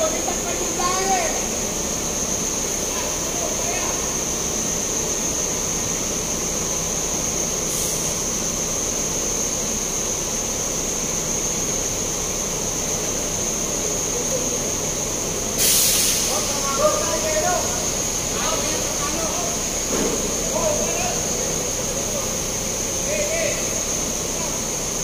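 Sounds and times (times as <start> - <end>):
heavy diesel machinery rumbling: 0.0 - 25.0
short hisses: 15.6 - 16.6.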